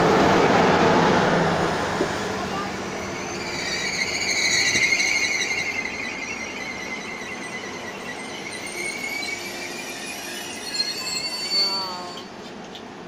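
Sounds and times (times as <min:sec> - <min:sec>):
brake squeal: 0:03.0 - 0:12.4.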